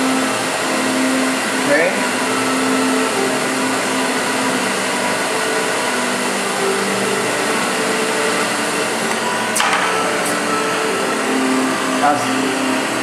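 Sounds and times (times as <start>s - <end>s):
propane torch flame hissing: 0.0s - 13.0s.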